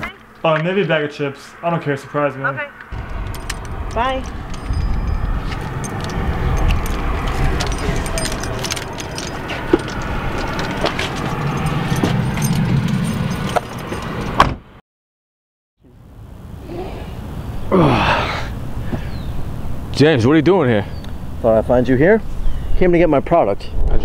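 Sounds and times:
low vehicle rumble: 0:02.8 - 0:14.4
keys jangling: 0:03.0 - 0:14.4
car door shutting: 0:14.2 - 0:14.7.

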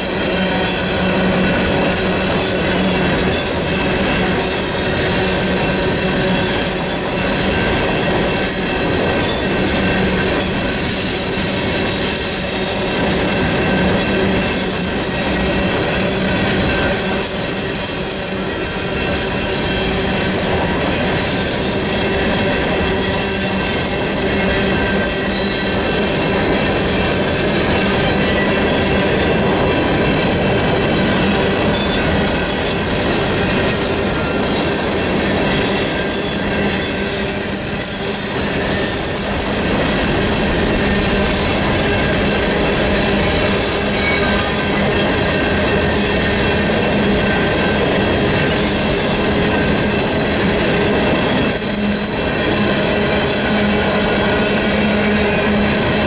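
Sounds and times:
train wheels rumbling on rails: 0:00.0 - 0:56.0
high-pitched wheel squeal: 0:17.4 - 0:21.5, 0:35.8 - 0:39.9, 0:51.3 - 0:52.6.

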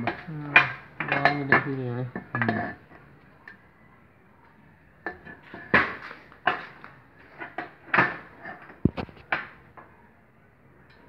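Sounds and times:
metal parts knocking on a workbench: 0:00.0 - 0:02.8.

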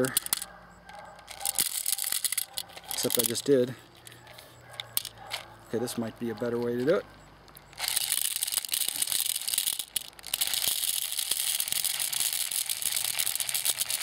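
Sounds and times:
plastic beads rattling: 0:00.0 - 0:05.5, 0:07.4 - 0:14.0.

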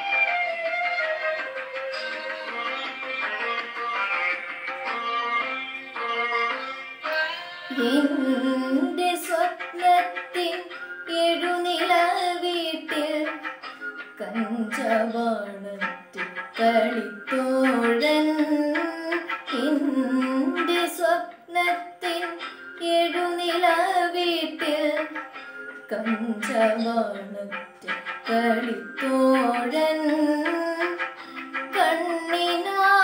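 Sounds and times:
instrumental accompaniment: 0:00.0 - 0:33.0
girl singing: 0:07.0 - 0:13.5, 0:14.2 - 0:25.2, 0:25.9 - 0:27.6, 0:28.3 - 0:33.0.

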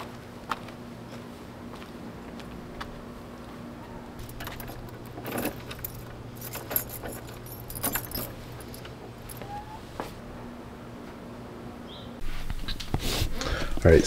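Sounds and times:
steady low hum: 0:00.0 - 0:14.0
keys jangling: 0:04.2 - 0:09.7.

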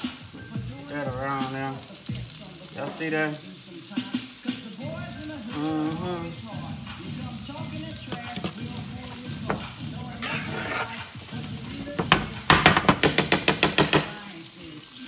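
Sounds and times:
vegetables sizzling in a skillet: 0:00.0 - 0:15.0
spoon tapping against a pan: 0:08.0 - 0:10.4, 0:11.3 - 0:14.4.

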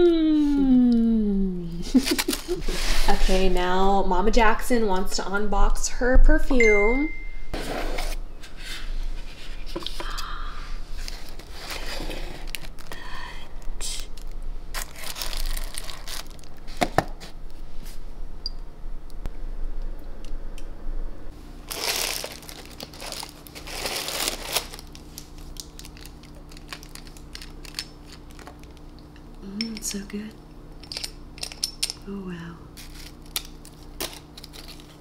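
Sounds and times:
tissue paper crinkling: 0:14.7 - 0:16.7, 0:21.7 - 0:28.5.

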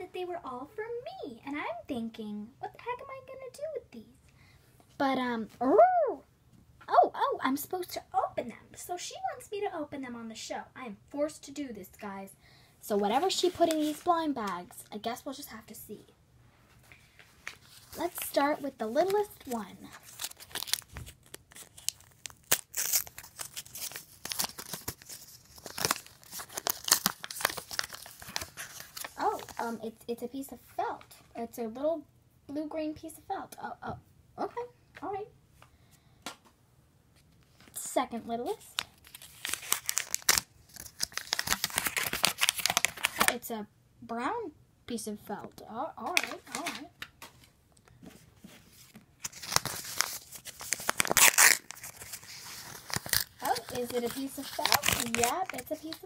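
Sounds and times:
paper packet crinkling and tearing: 0:13.1 - 0:14.2, 0:17.4 - 0:29.8, 0:38.6 - 0:43.4, 0:48.7 - 0:56.0.

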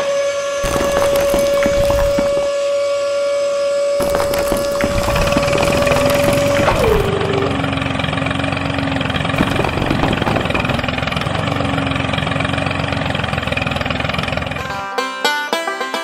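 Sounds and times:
tractor engine idling: 0:04.0 - 0:14.7.

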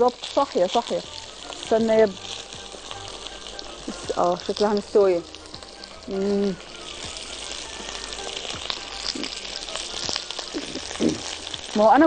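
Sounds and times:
noodles sizzling in pot: 0:00.0 - 0:12.0
person humming: 0:06.0 - 0:08.3, 0:08.9 - 0:11.4.

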